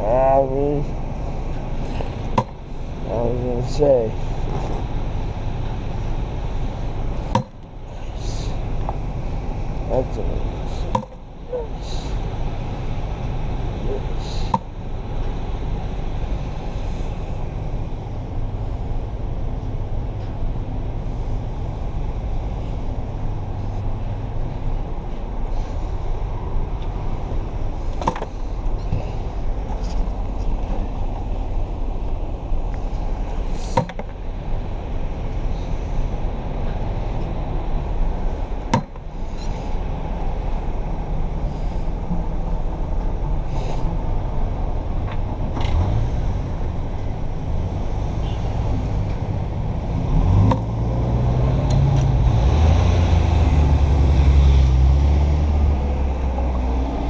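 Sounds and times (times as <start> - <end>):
traffic on wet pavement: 0.0 - 57.0
nearby car engine: 45.1 - 57.0.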